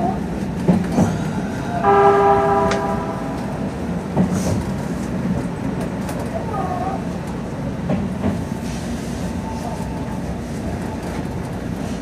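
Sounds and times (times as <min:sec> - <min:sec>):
rail-joint clicks: 0:00.4 - 0:01.4, 0:02.4 - 0:06.4, 0:07.2 - 0:09.0
train horn: 0:01.8 - 0:03.7.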